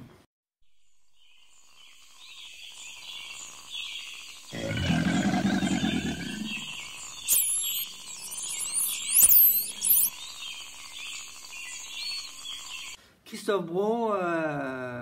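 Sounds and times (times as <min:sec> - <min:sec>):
birds chirping: 0:01.2 - 0:13.0
high sliding whistles: 0:07.2 - 0:10.1.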